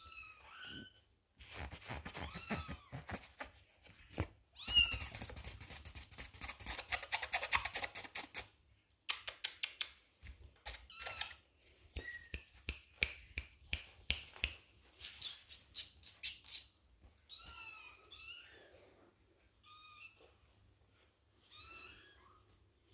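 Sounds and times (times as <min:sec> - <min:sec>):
kittens scratching on bedding: 0:01.4 - 0:08.5.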